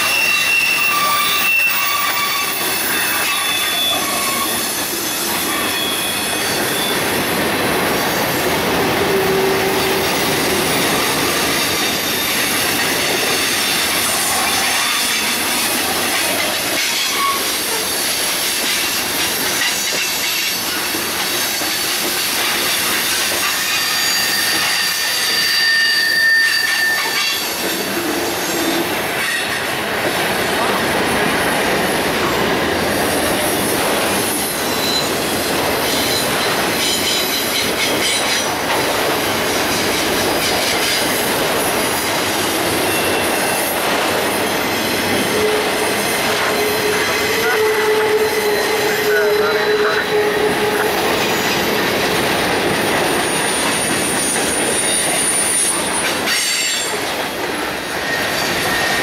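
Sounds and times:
high-pitched wheel squeals: 0.0 - 7.1, 16.2 - 17.9, 23.4 - 29.5, 34.7 - 35.2, 42.9 - 51.5
train wheels clattering on track: 0.0 - 49.4, 50.1 - 59.0.

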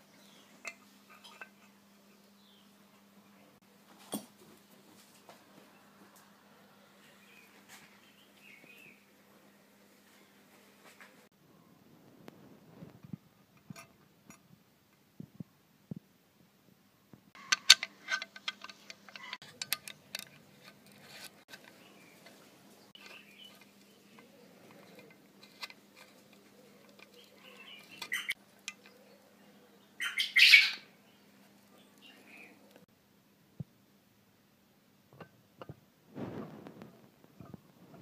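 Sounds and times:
steel sleeve scraping into housing: 17.4 - 28.4
small metal parts clicking: 17.4 - 29.0.

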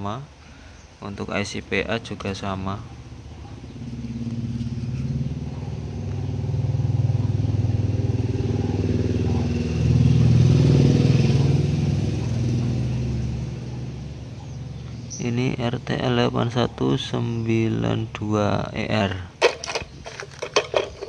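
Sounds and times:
vehicle engine running: 2.8 - 15.5, 19.4 - 21.0.

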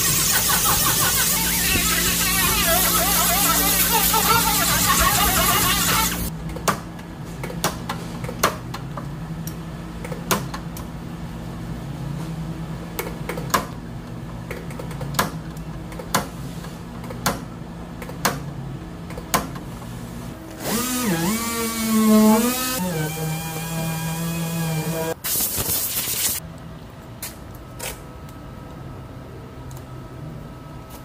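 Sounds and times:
orbital sander whine: 0.0 - 6.3, 20.6 - 25.2.

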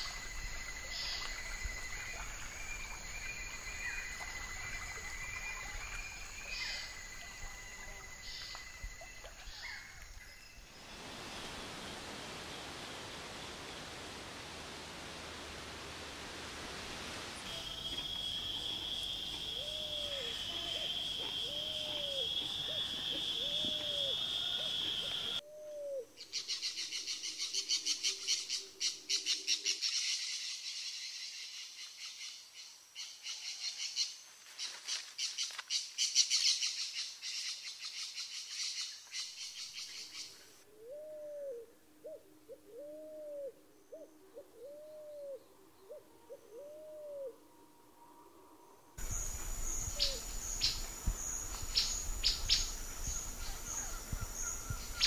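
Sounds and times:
low hooting bird notes: 40.7 - 51.1.

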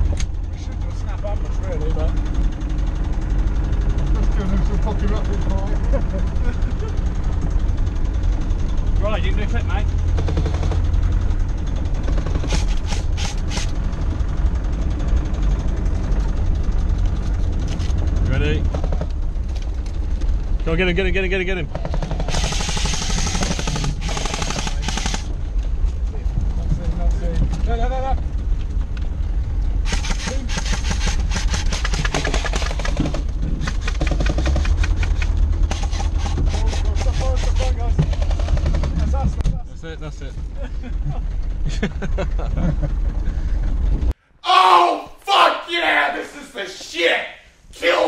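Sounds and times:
vehicle engine drone from inside: 0.0 - 44.3
rapid rattling clicks: 21.7 - 25.3, 29.9 - 36.4.

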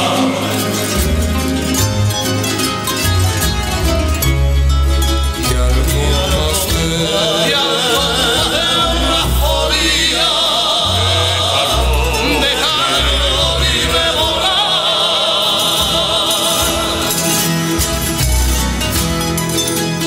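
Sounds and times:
sustained bass notes: 0.0 - 20.0
singing voice with vibrato: 5.5 - 17.7.

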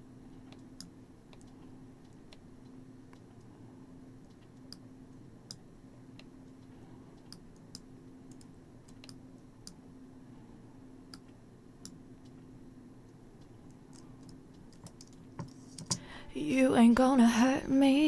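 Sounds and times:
faint low hum: 0.0 - 18.0
soft computer mouse clicks: 0.4 - 3.5, 4.2 - 9.8, 11.1 - 12.4, 13.4 - 16.0.

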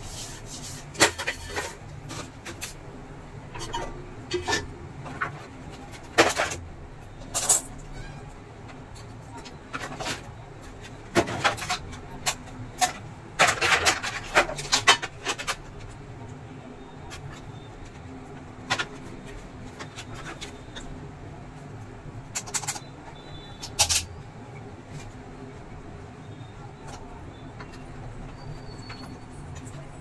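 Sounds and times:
plastic parts clicking and knocking: 3.4 - 8.0, 8.6 - 16.1, 17.1 - 21.0, 22.2 - 24.1.

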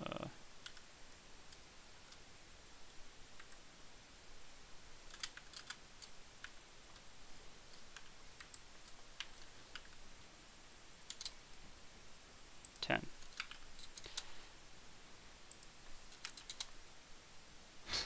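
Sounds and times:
computer keyboard typing: 5.1 - 7.1, 11.1 - 11.4, 12.6 - 14.2, 15.5 - 16.7.

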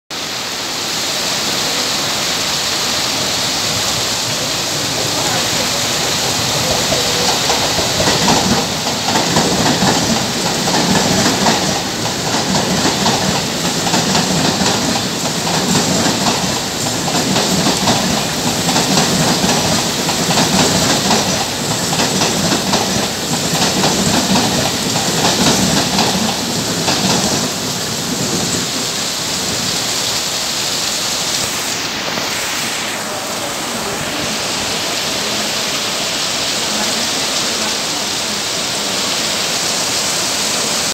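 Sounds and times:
heavy rain hissing: 0.1 - 40.9
train wheels clattering on rails: 3.7 - 29.8.

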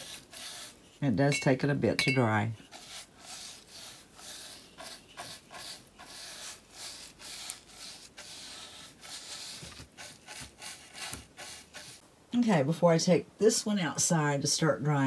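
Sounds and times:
paintbrush swishing on wood: 2.6 - 12.0.

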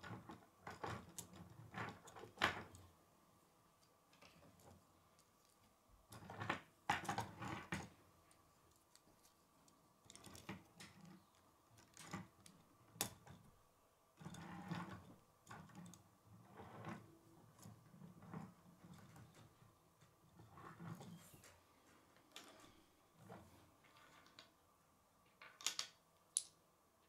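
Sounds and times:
plastic pieces clicking and rattling: 25.4 - 26.5.

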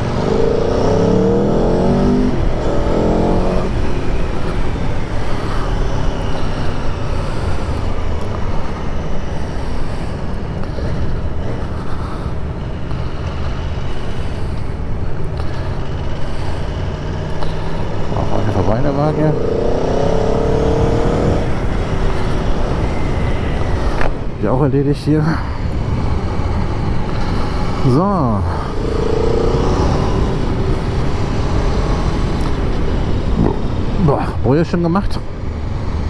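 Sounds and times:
motorcycle engine accelerating: 0.0 - 9.5, 15.7 - 24.0, 26.0 - 34.0.

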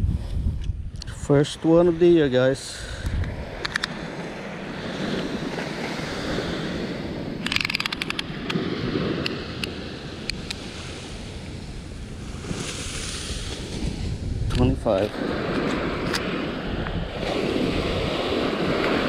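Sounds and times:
wind on microphone: 0.0 - 19.0
ocean surf: 1.3 - 19.0
clicks and ticks: 3.0 - 3.9, 7.4 - 8.6.

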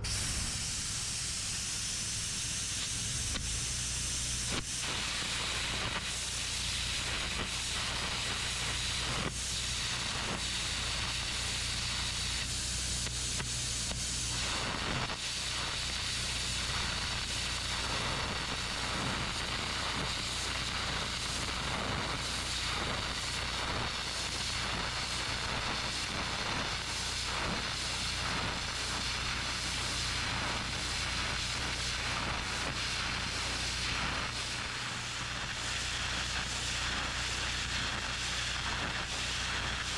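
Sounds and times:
low hum: 0.0 - 5.8
welding arc crackling: 0.0 - 39.9.

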